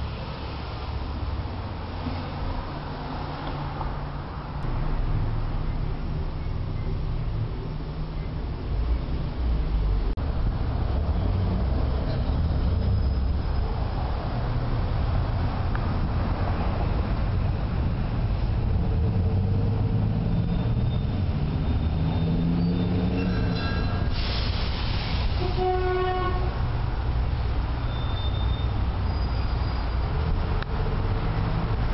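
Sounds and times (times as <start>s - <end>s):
large vehicle rumbling past: 0.0s - 25.7s
short hiss burst: 24.1s - 25.5s
vehicle horn: 25.4s - 26.6s.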